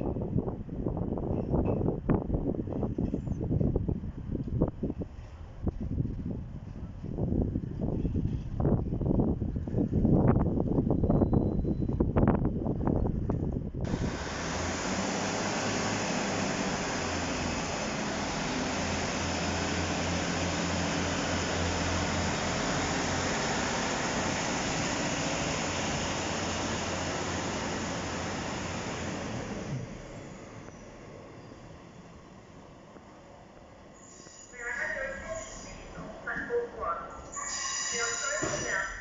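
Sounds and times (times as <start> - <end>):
train engine hum: 0.0 - 39.0
rushing hiss: 13.9 - 29.6.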